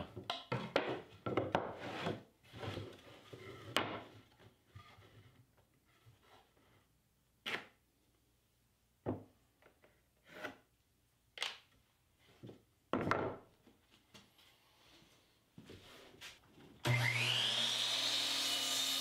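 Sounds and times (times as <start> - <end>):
boards scraping: 0.8 - 5.4.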